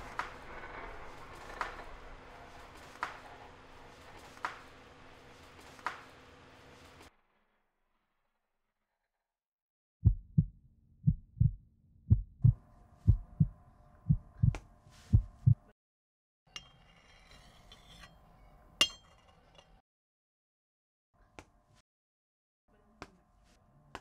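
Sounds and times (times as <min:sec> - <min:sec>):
heartbeat thumps: 0:10.0 - 0:15.7.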